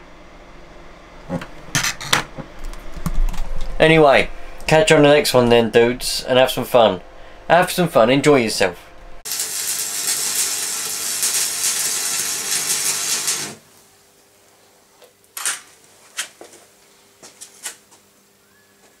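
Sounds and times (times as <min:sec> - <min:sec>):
arc welding crackling hiss: 0:09.2 - 0:14.0.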